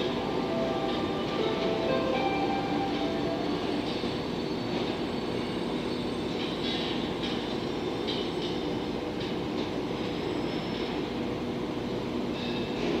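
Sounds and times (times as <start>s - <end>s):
electric train rumble and hum: 0.0s - 13.0s
high-pitched wheel squeals: 2.1s - 7.0s.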